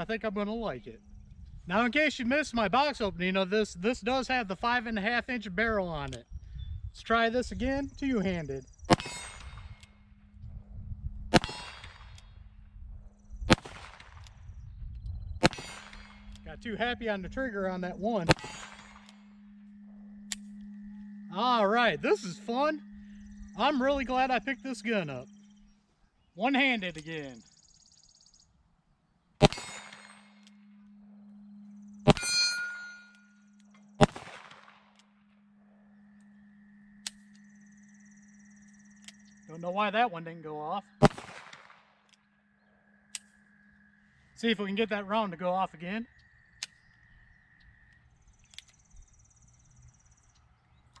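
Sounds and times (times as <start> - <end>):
revolver shots: 18.3 - 19.2, 29.4 - 30.2
steel plate clang: 32.1 - 33.2
brief metallic ring: 32.1 - 33.5.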